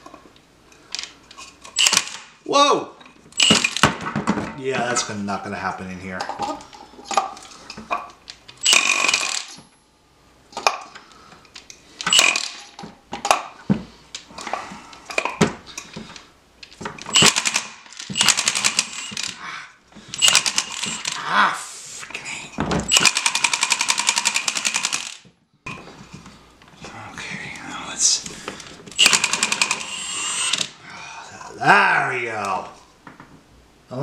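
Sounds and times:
impact wrench hammering: 3.4s - 4.1s, 8.6s - 9.6s, 12.1s - 12.7s, 17.1s - 19.3s, 20.2s - 21.2s, 22.9s - 25.2s, 29.0s - 30.7s.

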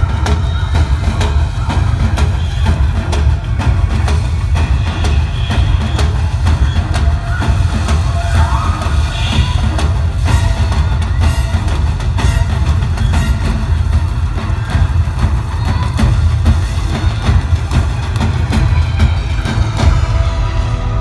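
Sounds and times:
deep steady bass: 0.0s - 21.0s
quick driving drum strokes: 0.0s - 21.0s.

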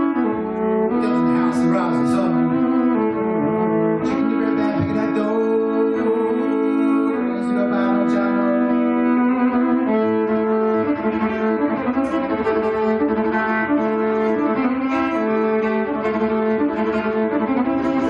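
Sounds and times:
electric violin held notes: 0.0s - 18.0s.

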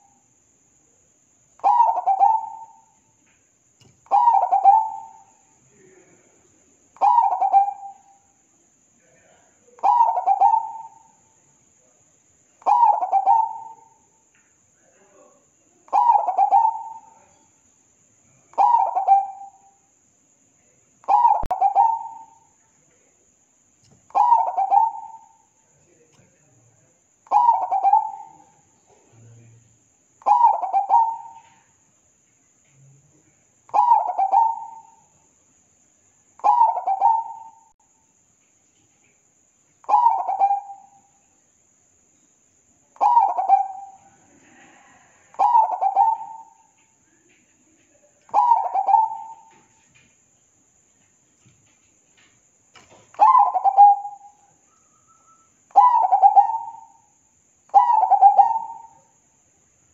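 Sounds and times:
dove cooing: 1.6s - 2.9s, 3.9s - 5.3s, 7.0s - 8.1s, 9.8s - 11.1s, 12.6s - 14.0s, 15.9s - 17.3s, 18.6s - 19.6s, 21.1s - 22.4s, 24.1s - 25.5s, 27.3s - 28.5s, 30.2s - 31.7s, 33.7s - 35.1s, 36.4s - 37.7s, 39.8s - 41.0s, 43.0s - 46.8s, 48.3s - 49.7s, 53.2s - 54.4s, 55.2s - 57.0s, 57.7s - 59.0s.

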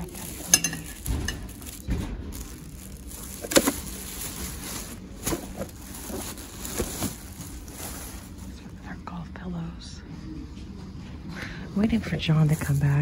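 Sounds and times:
objects knocking: 0.2s - 2.6s.

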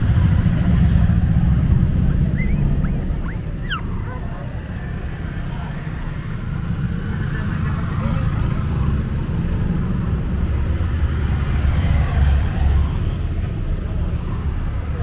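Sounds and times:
low rumbling background noise: 0.0s - 11.3s.

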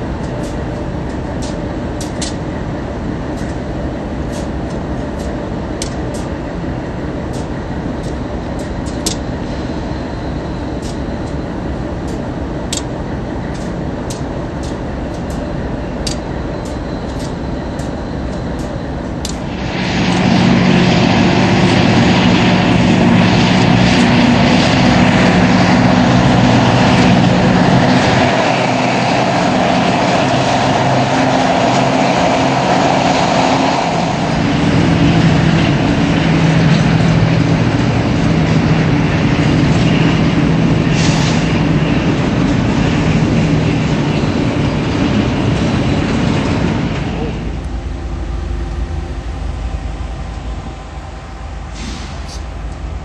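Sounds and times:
locomotive engine drone: 0.0s - 53.0s
brief high hiss: 51.7s - 52.5s.

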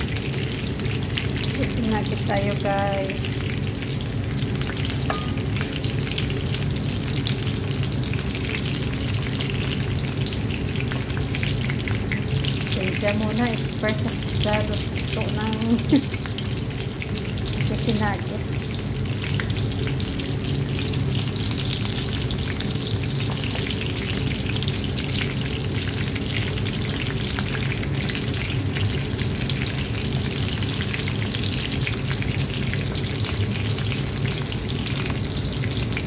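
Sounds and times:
food sizzling in frying pan: 0.0s - 36.0s
low steady hum: 0.0s - 36.0s.

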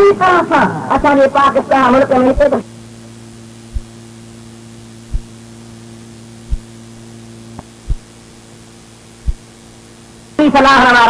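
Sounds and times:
electrical hum with hiss: 0.0s - 11.0s
low thumps: 3.7s - 4.1s, 5.0s - 5.5s, 6.4s - 8.2s, 9.2s - 9.6s.

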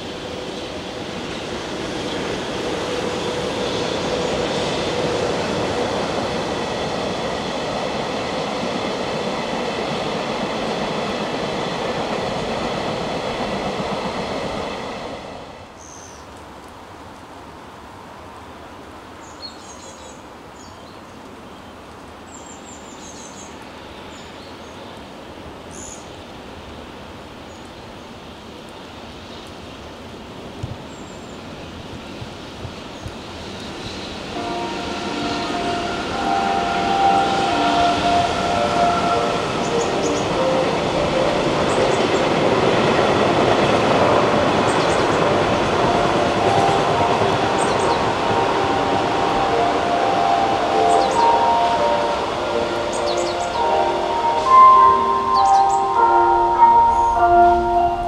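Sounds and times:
train wheels rumbling on track: 0.0s - 15.8s, 28.8s - 58.0s
steady outdoor hiss: 0.0s - 58.0s.

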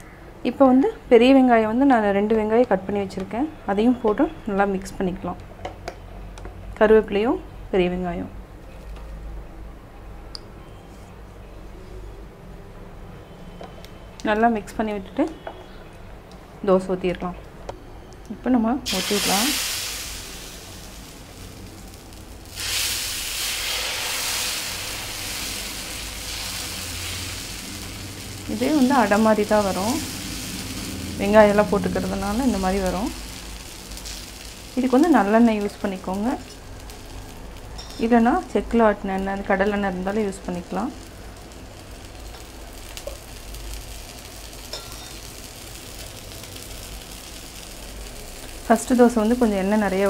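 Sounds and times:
batter sizzling on hot griddle: 18.9s - 50.0s.

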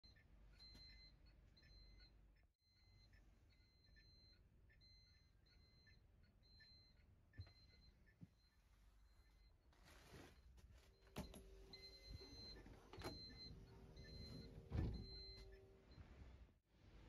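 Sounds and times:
thump: 14.7s - 15.1s.

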